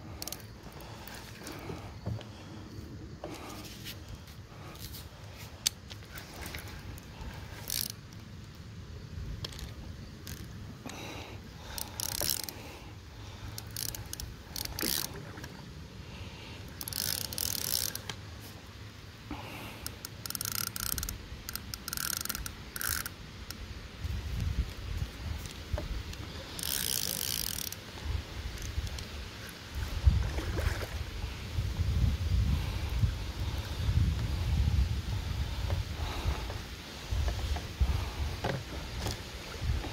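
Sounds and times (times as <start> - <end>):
fishing reel whirring and ratcheting: 0.1 - 1.7, 6.2 - 8.2, 9.4 - 11.0, 11.6 - 12.8, 13.4 - 15.4, 16.6 - 18.2, 19.8 - 23.6, 25.4 - 27.9
wind rumble on microphone: 23.7 - 26.5, 28.0 - 39.9.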